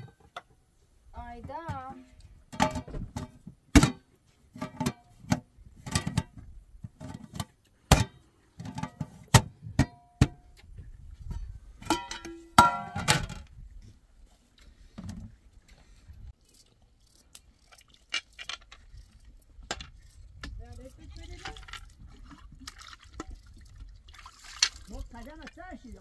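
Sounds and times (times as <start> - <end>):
cooking pots and lids clanking: 11.8 - 13.3.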